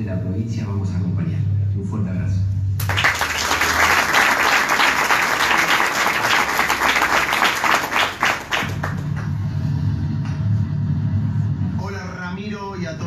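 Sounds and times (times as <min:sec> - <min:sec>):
audience applauding: 0:02.8 - 0:09.4.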